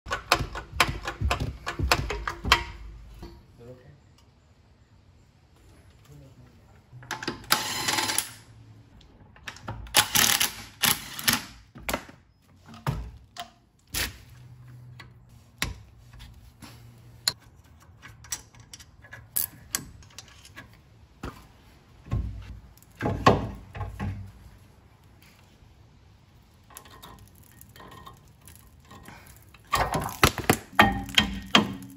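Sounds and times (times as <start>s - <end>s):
metal knocking and scraping: 0.1s - 3.4s.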